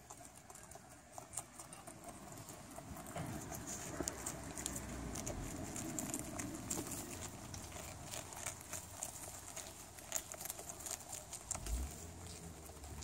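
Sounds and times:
rabbits crunching cabbage: 0:00.0 - 0:13.0.

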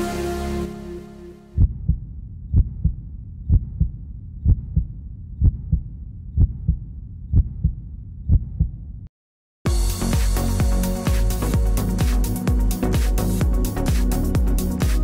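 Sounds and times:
heartbeat thumps: 0:01.6 - 0:08.9.

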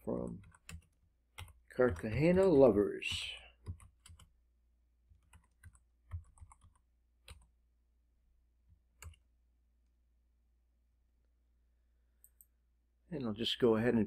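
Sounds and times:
faint keyboard typing: 0:00.1 - 0:04.3, 0:05.1 - 0:07.6, 0:09.0 - 0:09.3.

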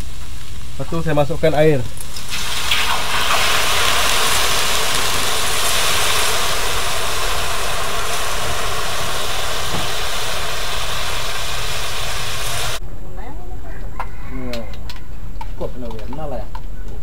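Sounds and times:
hissing steam: 0:00.0 - 0:12.8
water poured into hot wok: 0:02.0 - 0:12.8.

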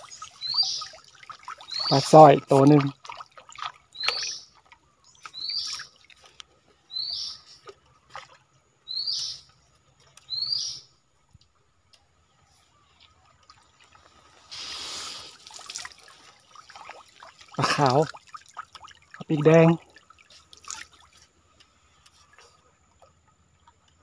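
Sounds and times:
water splashing and pouring: 0:00.0 - 0:06.4, 0:13.1 - 0:22.6.

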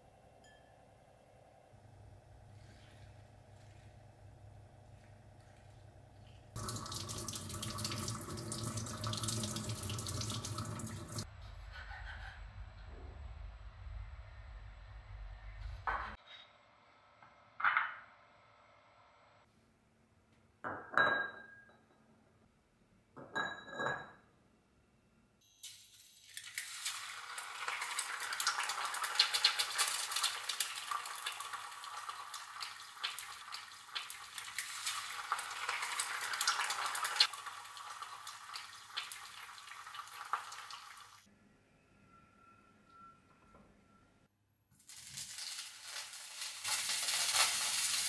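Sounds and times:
kitchenware knocks and clinks: 0:17.6 - 0:18.0, 0:20.7 - 0:22.0, 0:23.2 - 0:24.3
eggs sizzling in a pan: 0:25.7 - 0:41.3, 0:44.8 - 0:48.0.

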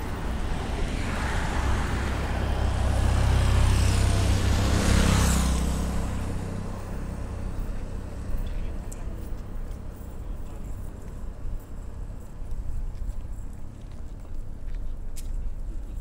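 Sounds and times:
vehicle passing by: 0:00.0 - 0:10.2.

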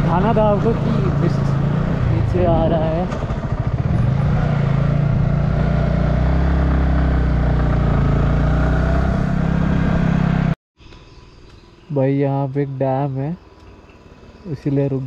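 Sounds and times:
motorcycle engine running: 0:00.0 - 0:10.6.

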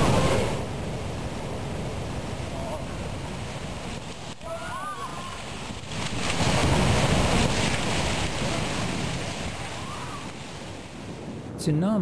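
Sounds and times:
water surging and breaking: 0:00.0 - 0:11.5.

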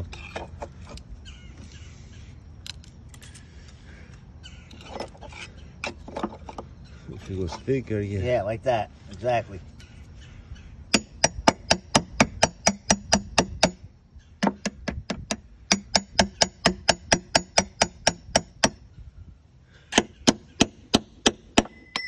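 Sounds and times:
hammer tapping metal tool: 0:21.2 - 0:22.0.

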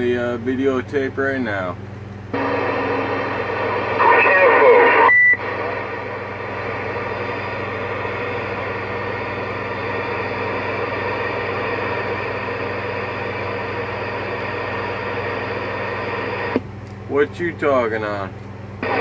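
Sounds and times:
low hum: 0:02.2 - 0:16.6
radio static hiss: 0:02.4 - 0:16.6, 0:18.8 - 0:19.0.

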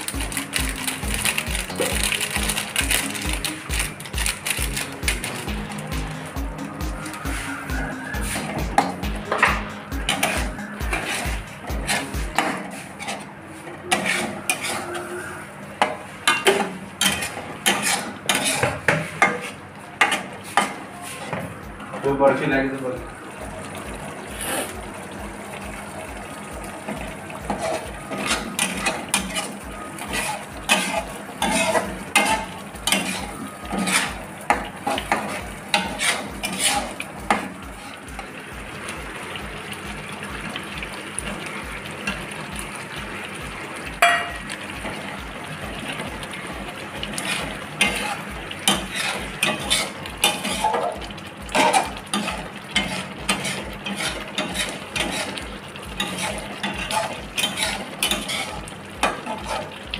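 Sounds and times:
curry gravy bubbling: 0:00.0 - 0:59.9
light sizzle: 0:00.0 - 0:59.9
metal spatula scraping pan: 0:06.8 - 0:21.5, 0:27.4 - 0:38.2, 0:47.0 - 0:59.9.

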